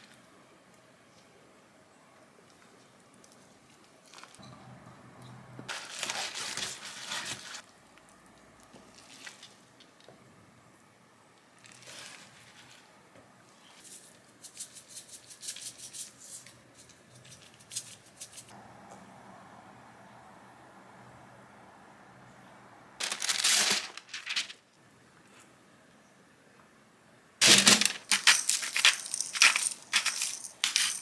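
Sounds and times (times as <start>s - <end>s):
seeds rattling in shaker jar: 27.4s - 31.0s.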